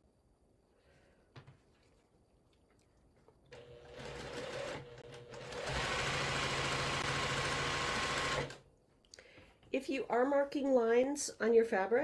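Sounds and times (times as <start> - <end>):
electric sewing machine stitching: 3.5 - 8.6.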